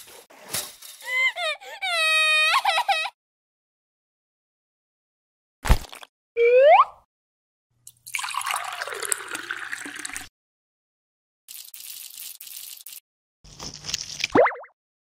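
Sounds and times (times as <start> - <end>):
liquid pouring and gurgling: 7.9 - 10.3.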